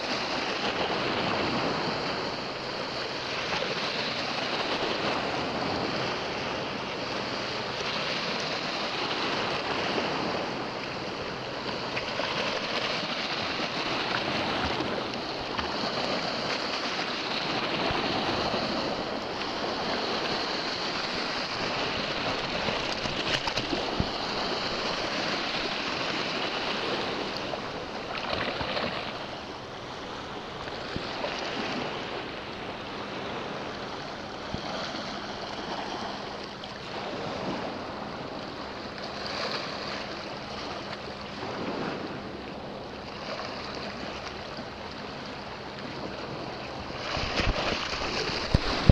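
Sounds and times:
small waves washing over rocks: 0:11.3 - 0:32.2, 0:39.0 - 0:42.0, 0:45.8 - 0:48.9.

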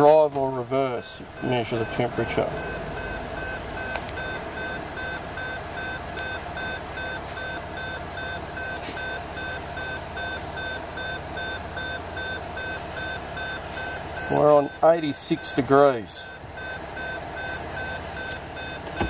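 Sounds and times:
diesel engine idling: 0:00.0 - 0:19.0
vehicle warning chime beeping: 0:00.0 - 0:19.0.

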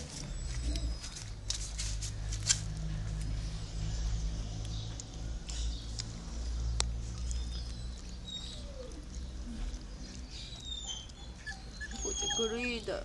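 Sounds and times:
puppy whimpering and squeaking: 0:00.0 - 0:01.8, 0:07.1 - 0:13.0.

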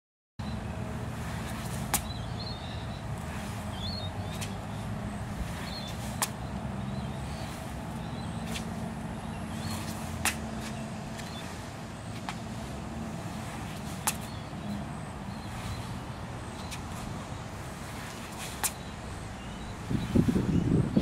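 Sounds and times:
distant traffic rumble: 0:00.4 - 0:21.0.

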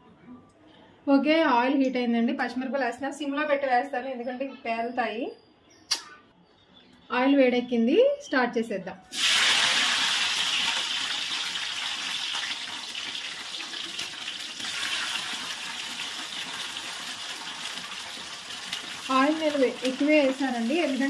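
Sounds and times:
chillies sizzling in hot oil: 0:09.1 - 0:21.0.

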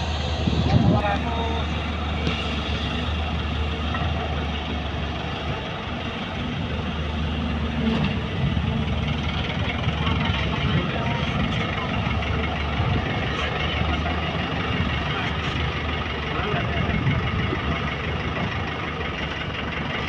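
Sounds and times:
heavy diesel engines running: 0:00.0 - 0:20.0.

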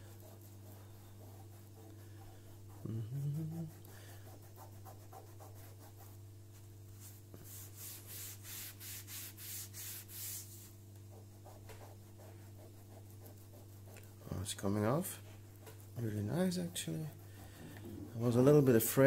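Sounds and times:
sponge scrubbing: 0:00.0 - 0:06.2, 0:07.0 - 0:14.0
person humming: 0:02.7 - 0:03.9.

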